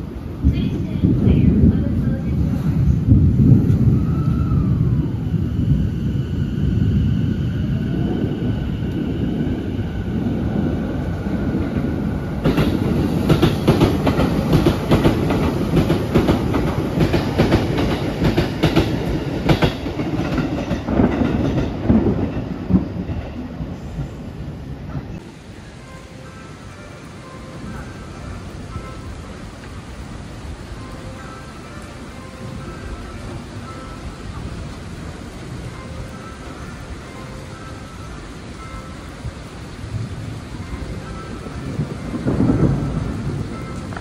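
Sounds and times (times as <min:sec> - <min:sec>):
train low rumble: 0:00.0 - 0:44.0
wheels clacking over rail joints: 0:11.4 - 0:23.4.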